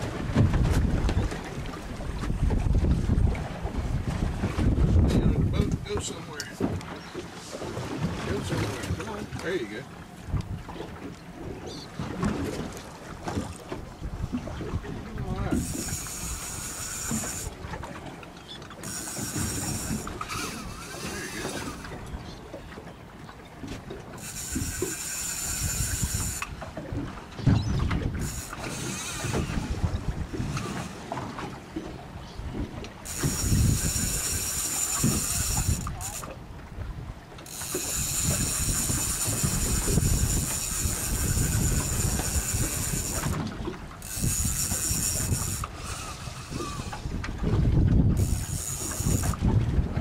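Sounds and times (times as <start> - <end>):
boat rumble: 0.0 - 50.0
low wind: 0.0 - 50.0
fishing reel drag buzzing: 15.3 - 22.4, 24.0 - 26.8, 27.4 - 31.5, 33.0 - 36.4, 37.4 - 47.2, 48.1 - 49.5.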